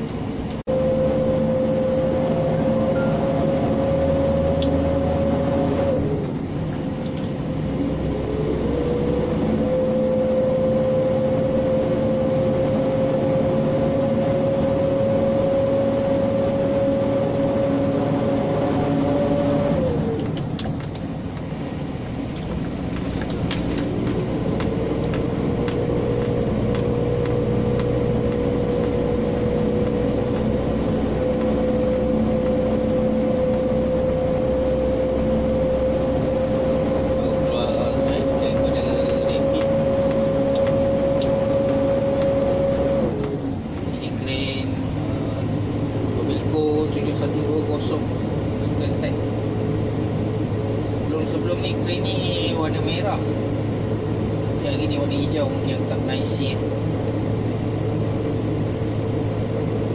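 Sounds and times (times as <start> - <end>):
diesel truck engine under load: 0.0 - 59.9
engine whine: 0.0 - 59.9.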